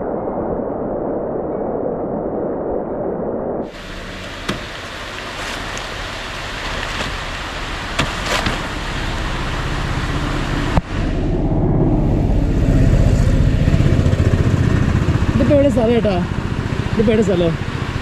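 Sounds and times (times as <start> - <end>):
steady rushing noise: 3.1 - 18.0
vehicle engine running: 3.7 - 18.0
sharp knocks: 4.4 - 4.9, 8.0 - 8.7.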